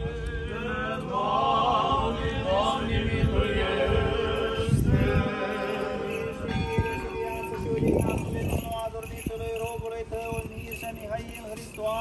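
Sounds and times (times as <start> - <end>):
church choir chanting a hymn: 0.0 - 7.5.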